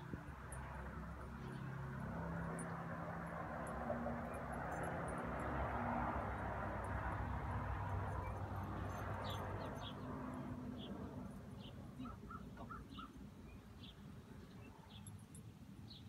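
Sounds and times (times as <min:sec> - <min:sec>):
birds chirping: 0:08.2 - 0:15.3.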